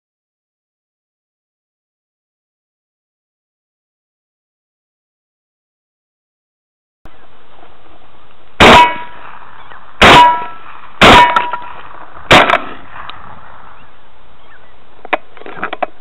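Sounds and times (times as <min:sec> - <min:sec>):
metallic ring of steel target: 0:08.6 - 0:09.4, 0:10.0 - 0:13.0
shotgun shots: 0:08.6 - 0:09.4, 0:10.0 - 0:13.5.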